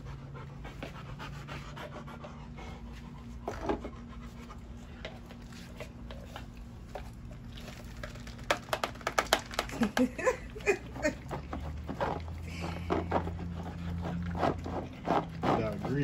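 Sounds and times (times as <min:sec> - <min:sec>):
dog panting softly: 0:00.0 - 0:06.5
steady low hum: 0:00.0 - 0:16.0.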